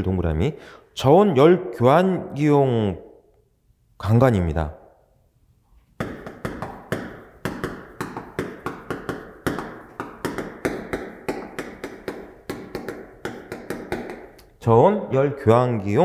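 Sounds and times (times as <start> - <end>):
chalk tapping on chalkboard: 6.0 - 14.5.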